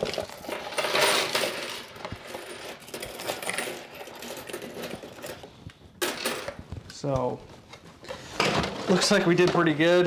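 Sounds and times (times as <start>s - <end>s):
coins clattering onto table: 0.0s - 5.4s, 6.0s - 6.6s.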